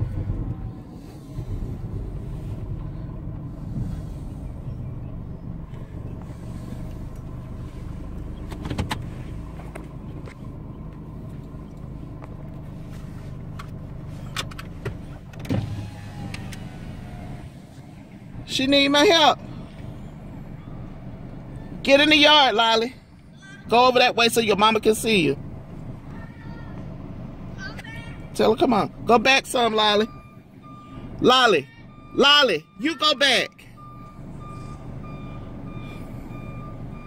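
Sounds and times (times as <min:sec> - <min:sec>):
vehicle engine idling: 0:00.0 - 0:37.0.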